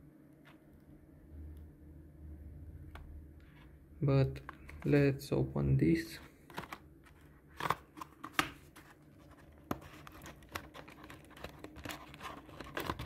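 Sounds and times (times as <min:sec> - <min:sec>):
packaging scraping and crinkling: 0:06.4 - 0:13.0.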